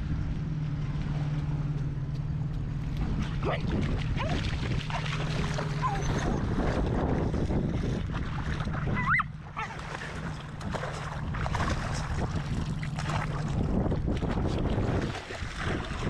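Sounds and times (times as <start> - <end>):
wind buffeting microphone: 0.0 - 16.0
person wading in water: 0.6 - 16.0
dog splashing through water: 2.7 - 16.0
short rising squeak: 5.8 - 6.5.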